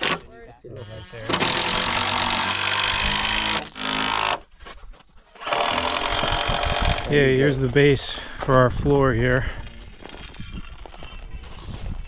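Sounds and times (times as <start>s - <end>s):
power tool cutting wood: 0.0s - 4.4s, 5.4s - 7.2s.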